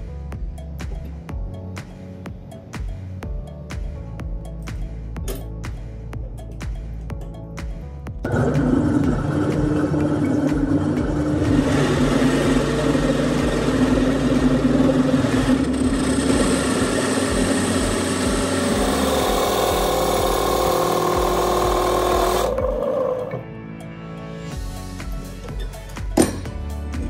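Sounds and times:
drill press cutting metal: 8.3 - 23.4.

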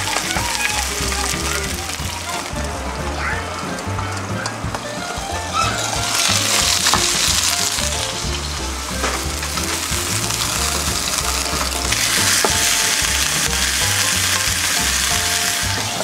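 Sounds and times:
background music: 0.0 - 16.0
chicken sizzling in frying pan: 0.0 - 16.0.

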